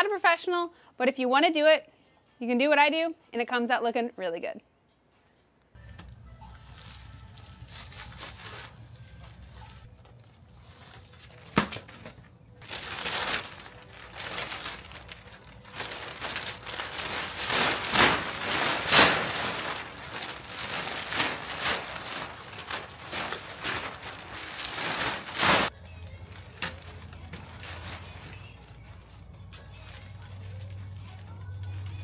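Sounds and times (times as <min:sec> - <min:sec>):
plastic sheeting crinkling: 0:06.6 - 0:09.9, 0:12.6 - 0:32.0.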